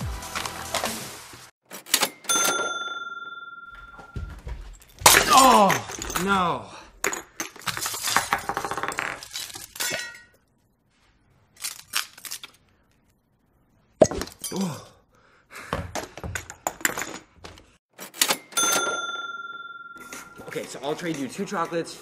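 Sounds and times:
glass ornaments breaking: 5.0 - 10.4.

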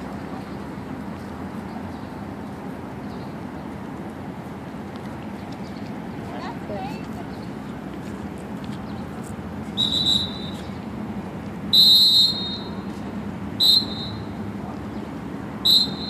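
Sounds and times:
whistle blasts: 9.8 - 10.7, 11.7 - 12.9, 13.6 - 14.4, 15.6 - 16.0.

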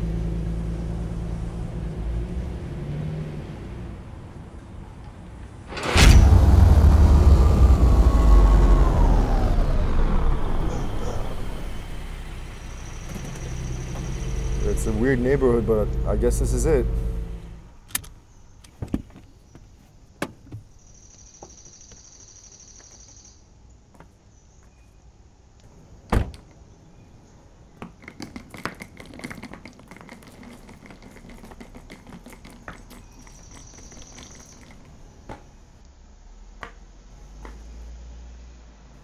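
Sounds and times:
car door shutting: 5.7 - 9.8, 12.8 - 18.1, 26.1 - 26.4.

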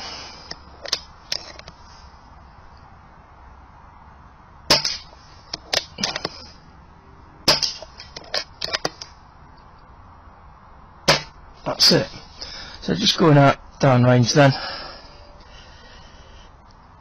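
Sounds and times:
sharp clicks and knocks: 7.5 - 9.8.

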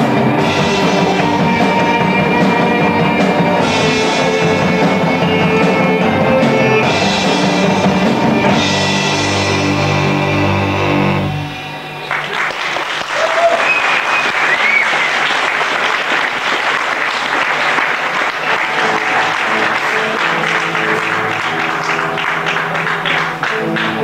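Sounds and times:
audience applauding: 0.0 - 5.4, 11.3 - 24.0
held instrument notes: 0.0 - 12.4
gliding whistles: 13.3 - 15.4.

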